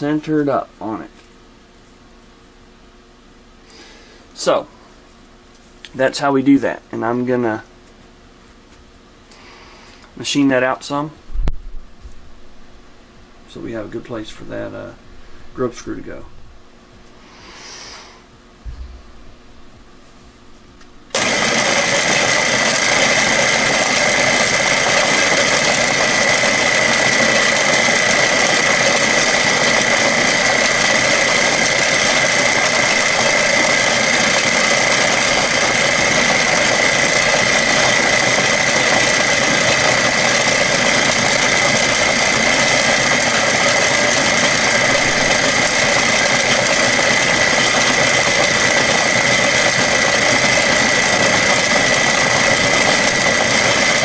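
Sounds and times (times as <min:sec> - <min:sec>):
high motor whine: 0:18.6 - 0:54.0
milling machine cutting metal: 0:21.1 - 0:54.0.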